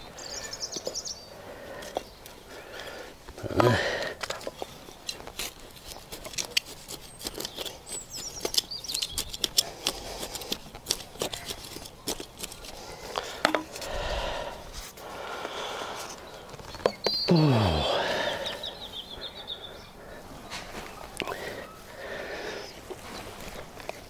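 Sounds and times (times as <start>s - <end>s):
hands working soil and plants: 0.0s - 24.0s
wavering bird chirp: 16.3s - 20.6s.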